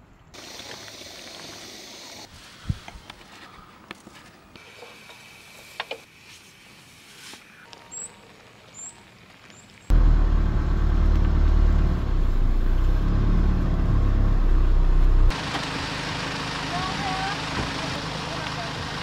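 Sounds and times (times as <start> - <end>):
car driving rumble: 9.9 - 19.0.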